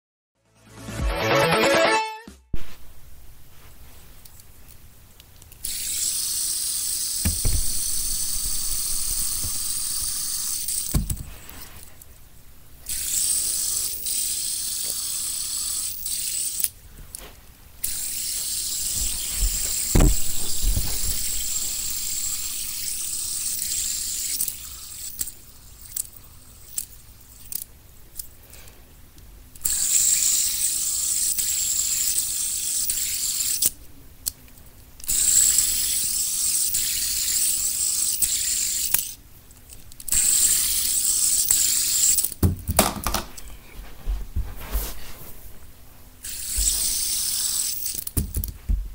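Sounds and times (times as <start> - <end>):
fidget spinner whirring: 5.4 - 12.1, 12.8 - 16.8, 17.8 - 27.7, 29.6 - 33.8, 35.0 - 42.4, 46.2 - 48.5
single thump: 7.2 - 9.8, 19.9 - 21.1.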